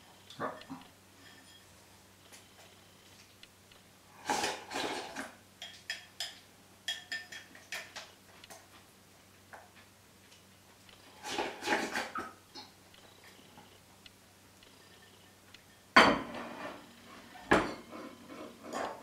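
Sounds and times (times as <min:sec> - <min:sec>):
person slurping: 0:04.2 - 0:05.3, 0:11.1 - 0:12.2.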